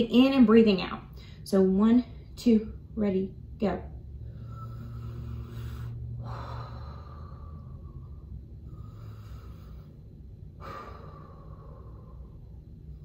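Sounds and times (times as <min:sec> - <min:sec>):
woman breathing deeply: 0:04.1 - 0:13.0.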